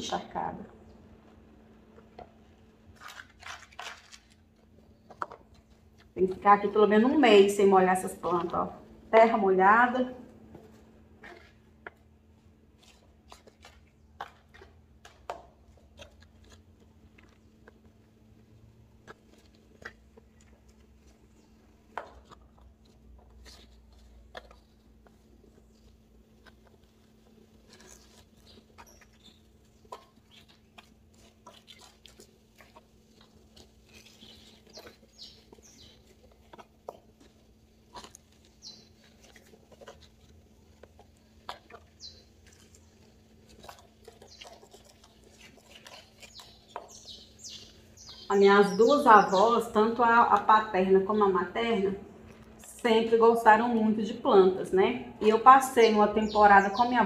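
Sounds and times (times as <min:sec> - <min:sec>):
steady low hum: 0:04.2 - 0:57.0
hands working wet soil: 0:10.6 - 0:51.3.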